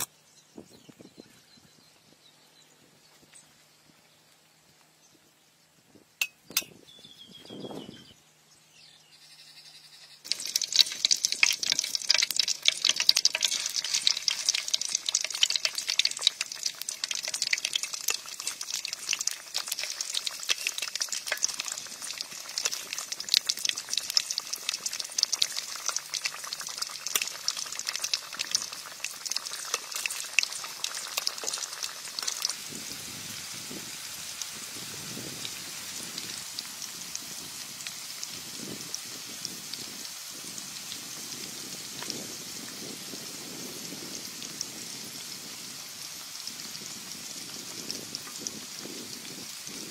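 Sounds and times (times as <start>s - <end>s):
food deep-frying in hot oil: 10.2s - 49.9s.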